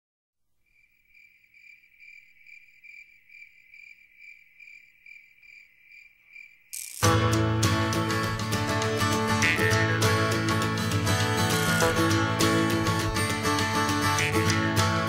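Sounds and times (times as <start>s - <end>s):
crickets chirping: 0.6s - 7.1s.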